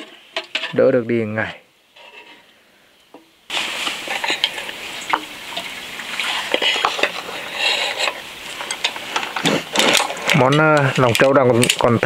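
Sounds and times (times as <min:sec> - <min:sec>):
stirring clicks and scrapes: 0:01.9 - 0:02.6, 0:03.5 - 0:12.0
food sizzling in a pan: 0:03.2 - 0:10.4.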